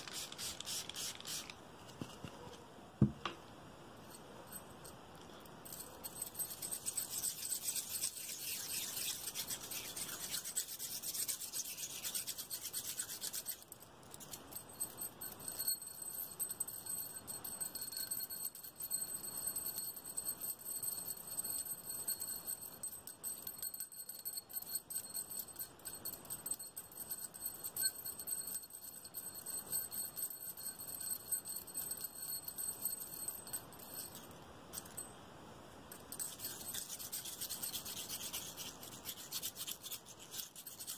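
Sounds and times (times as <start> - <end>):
hands rubbing and scratching: 0.0 - 2.3, 6.6 - 13.6, 36.2 - 40.9.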